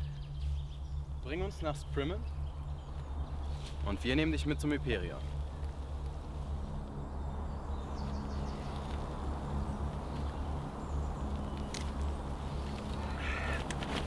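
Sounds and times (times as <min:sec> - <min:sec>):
faint outdoor ambience: 0:00.0 - 0:14.0
low steady drone: 0:00.0 - 0:14.0.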